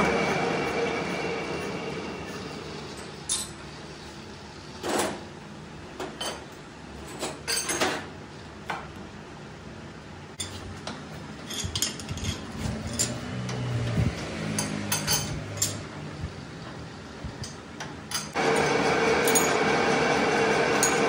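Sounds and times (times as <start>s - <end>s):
metal tools clinking: 3.0s - 3.6s, 11.4s - 13.2s, 14.6s - 15.9s.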